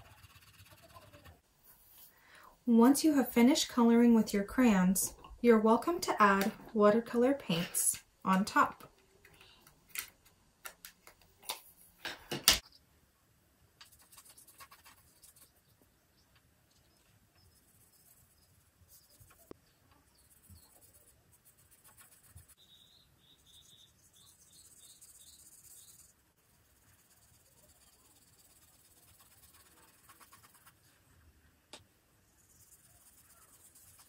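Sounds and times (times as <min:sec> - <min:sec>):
paintbrush brushing over paper: 0:13.8 - 0:15.7, 0:16.9 - 0:31.2, 0:32.3 - 0:34.0.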